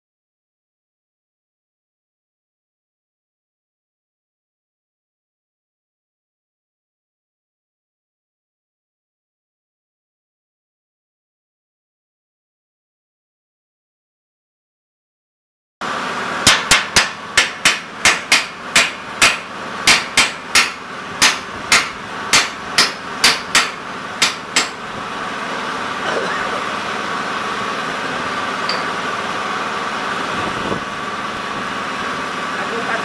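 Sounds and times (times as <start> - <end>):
steady machine hum: 15.8 - 33.0
hammer clanging on steel plate: 16.5 - 24.8.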